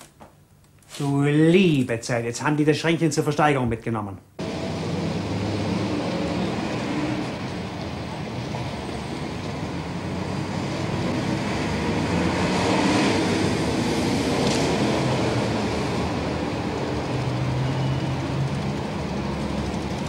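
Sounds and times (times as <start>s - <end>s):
cars passing: 4.4s - 20.0s.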